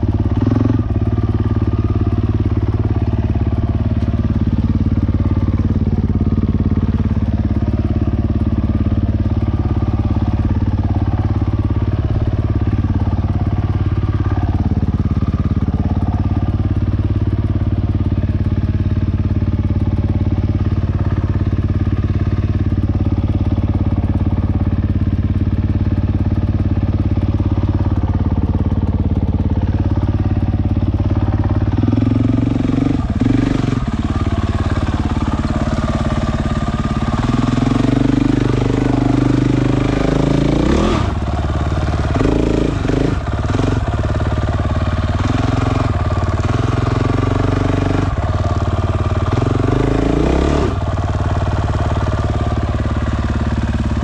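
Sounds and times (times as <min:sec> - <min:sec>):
dirt bike engine idling and revving: 0:00.0 - 0:54.0.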